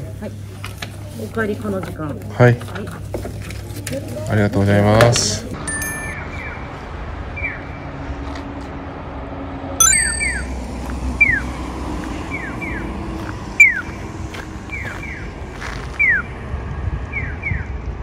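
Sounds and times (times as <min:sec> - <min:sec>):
sharp clicks with high ringing: 0:09.8 - 0:10.5
short falling electronic chirps: 0:09.8 - 0:10.6.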